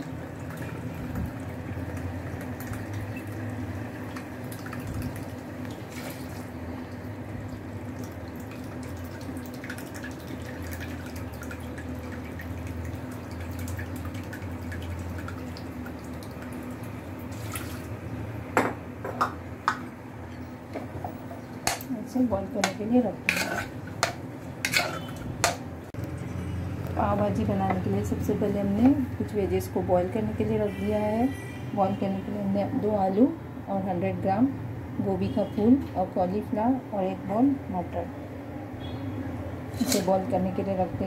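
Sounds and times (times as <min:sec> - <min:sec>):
water pouring into a pot: 0:00.3 - 0:18.0.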